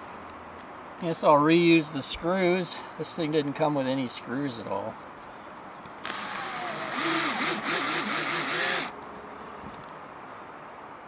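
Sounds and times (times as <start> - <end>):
cordless drill motor whining: 6.0 - 8.9.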